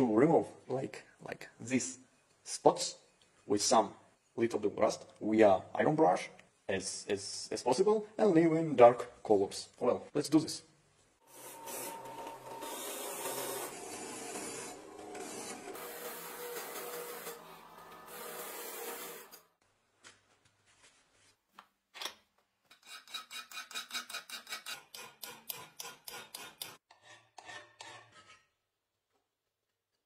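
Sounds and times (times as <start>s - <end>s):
wire-wheel brush scratching metal: 11.3s - 19.5s
file rasping on metal: 22.7s - 28.5s.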